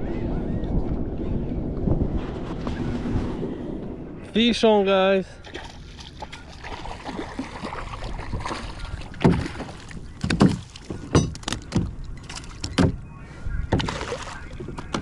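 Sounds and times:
water and gear rustling: 5.3s - 15.0s.

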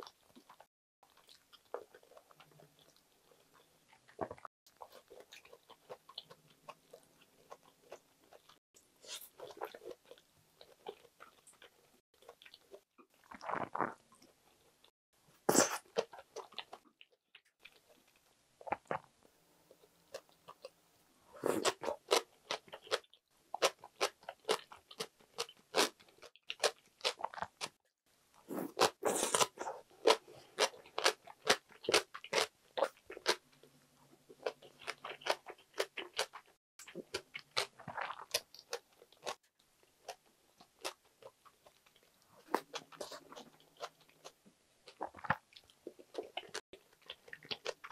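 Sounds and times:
person chewing crunchy food: 0.0s - 14.7s, 15.5s - 19.1s, 21.3s - 27.8s, 28.4s - 47.9s.

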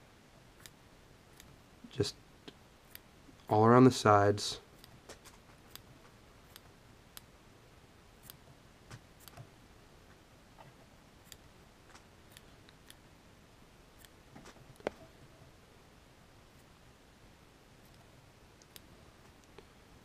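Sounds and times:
scissors snipping yarn: 4.8s - 5.9s, 8.2s - 9.5s, 14.0s - 14.9s.

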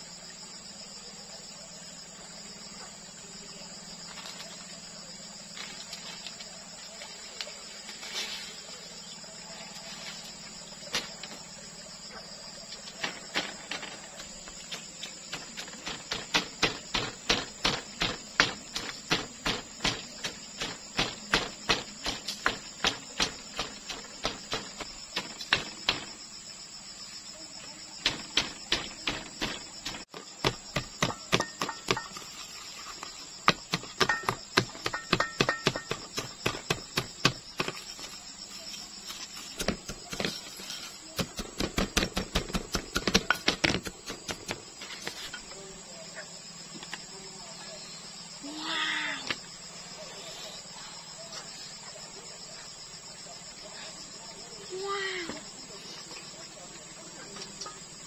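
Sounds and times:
insects chirring: 0.0s - 58.0s
wooden stick pounding in bowl: 28.0s - 32.2s, 33.5s - 37.8s, 41.2s - 44.6s.

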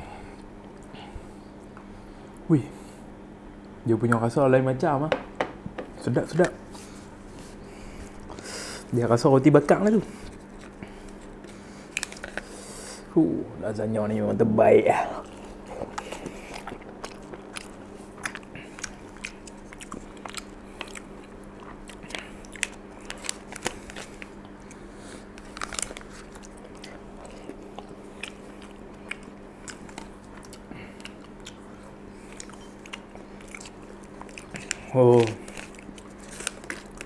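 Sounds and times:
steady low hum: 0.0s - 37.0s
person chewing food: 6.7s - 8.9s, 10.0s - 12.7s, 15.0s - 37.0s.

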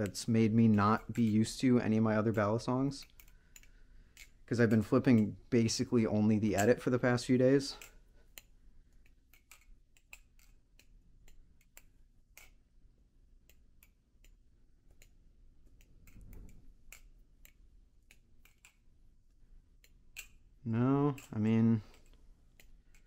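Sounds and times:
knife trainer clicking and clacking: 0.0s - 12.6s, 13.4s - 18.9s, 19.8s - 23.0s.

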